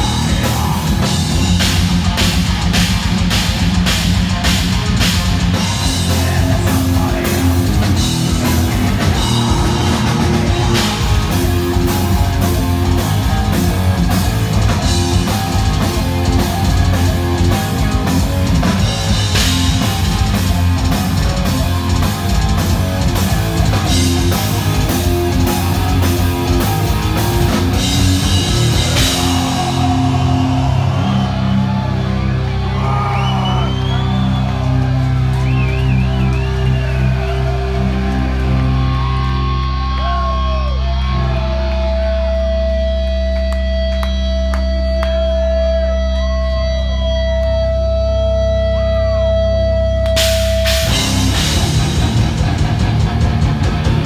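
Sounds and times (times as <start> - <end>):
fast drumming: 0.0 - 32.0, 50.2 - 54.0
distorted guitars: 0.0 - 54.0
metal band playing: 0.0 - 54.0.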